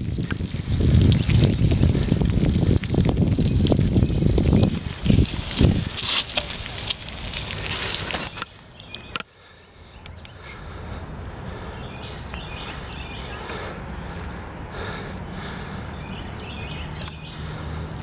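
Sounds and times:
bicycle tyres on wet gravel: 0.0s - 18.0s
low outdoor noise: 0.0s - 18.0s
faint bird calls: 8.1s - 17.8s.

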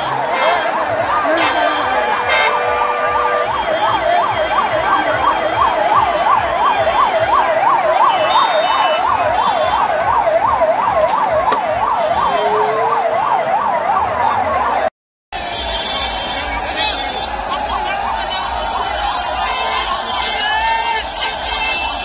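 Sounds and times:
electronic siren yelping: 0.0s - 14.9s
large street crowd noise: 0.0s - 22.0s.

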